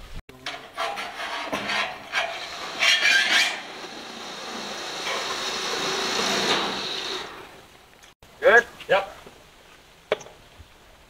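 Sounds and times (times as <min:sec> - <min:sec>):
metal roofing scraping on steel frame: 0:00.3 - 0:07.7.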